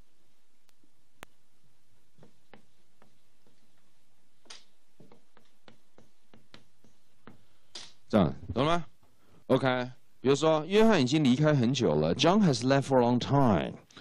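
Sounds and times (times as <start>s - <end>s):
chalk tapping on chalkboard: 5.0s - 7.6s.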